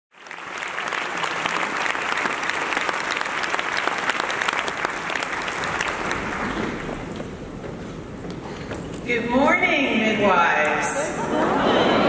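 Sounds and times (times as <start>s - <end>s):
audience applauding: 0.1s - 7.2s.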